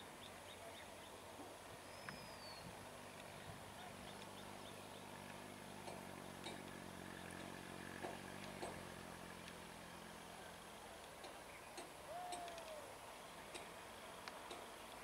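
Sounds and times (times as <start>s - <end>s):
distant train diesel engine hum: 0.0s - 15.0s
bird chirps: 1.8s - 2.7s.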